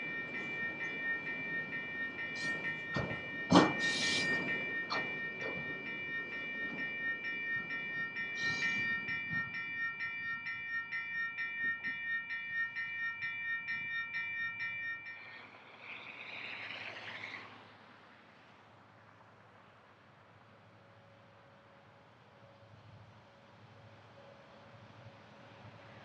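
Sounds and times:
high rail squealing: 0:00.0 - 0:10.3
crossing warning bell ringing: 0:00.0 - 0:16.8
freight train rolling: 0:00.0 - 0:26.0.

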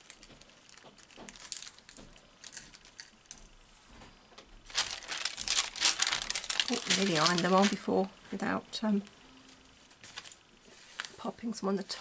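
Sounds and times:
loud crinkling rustle: 0:00.0 - 0:03.0, 0:04.6 - 0:08.1, 0:10.0 - 0:11.3
hands handling crafting materials: 0:00.0 - 0:03.4, 0:04.6 - 0:08.1, 0:09.9 - 0:11.3.

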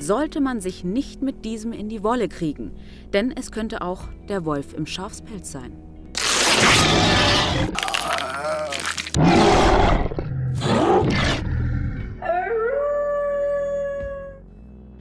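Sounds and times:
wolf roars and growls: 0:06.4 - 0:12.4
wolf howl: 0:12.2 - 0:14.4.

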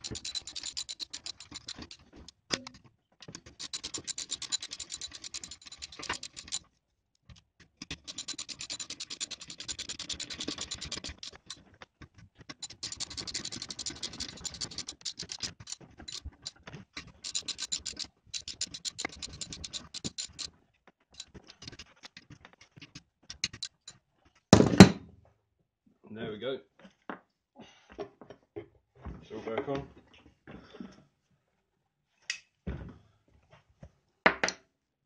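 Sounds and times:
hand ratchet clicking: 0:00.0 - 0:06.6, 0:07.8 - 0:11.6, 0:12.5 - 0:20.5, 0:21.2 - 0:21.8, 0:23.3 - 0:23.9.

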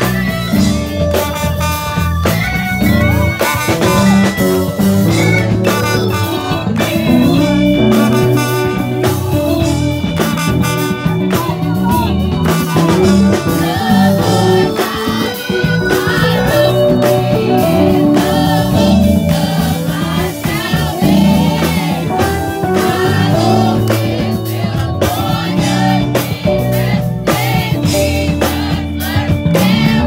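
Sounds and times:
band playing gospel music: 0:00.0 - 0:30.0
choir singing: 0:11.5 - 0:30.0.

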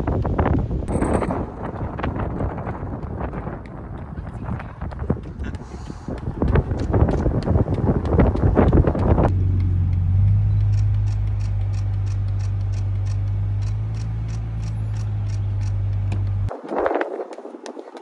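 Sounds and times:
vehicle low drone: 0:00.0 - 0:16.6
wind buffeting microphone: 0:00.0 - 0:18.0.

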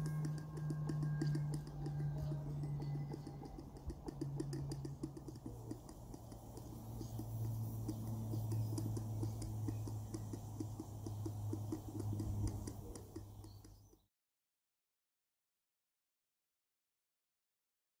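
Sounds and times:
steady low hum: 0:00.0 - 0:13.8
model steam engine clicking: 0:00.0 - 0:14.0.

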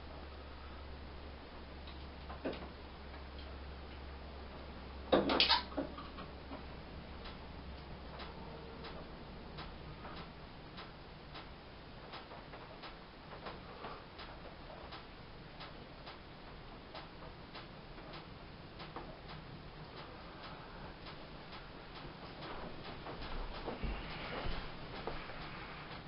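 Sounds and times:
small fire crackling and popping: 0:01.8 - 0:26.0.

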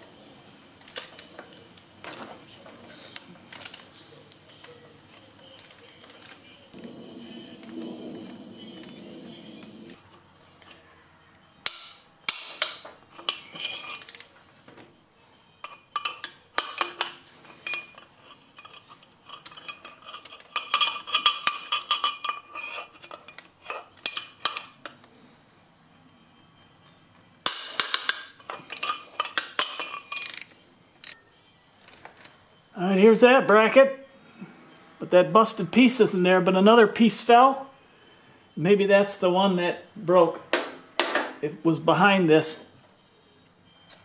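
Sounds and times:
ratchet wrench clicking on metal: 0:30.2 - 0:31.2.

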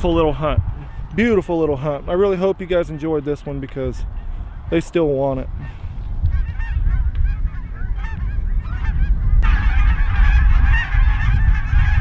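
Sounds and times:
wind rumble on microphone: 0:00.0 - 0:12.0
geese honking: 0:05.6 - 0:12.0.

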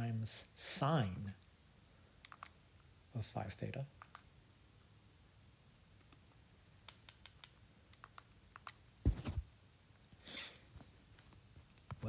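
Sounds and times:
short thud: 0:09.0 - 0:09.4.

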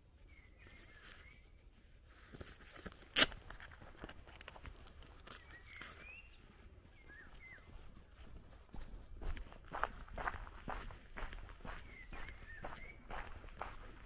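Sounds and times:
birds chirping: 0:00.0 - 0:02.0, 0:04.1 - 0:14.0
footsteps outdoors: 0:00.4 - 0:14.0.

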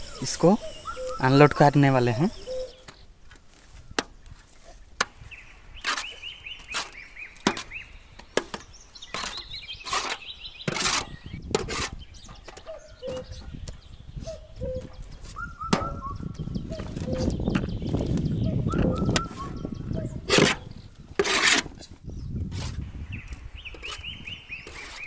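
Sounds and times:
hoe knocking and scraping metal: 0:05.8 - 0:13.5, 0:20.2 - 0:22.8.

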